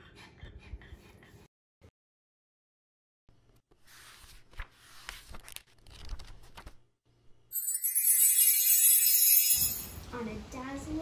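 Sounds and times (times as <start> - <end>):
book pages flipping: 3.5 - 6.8.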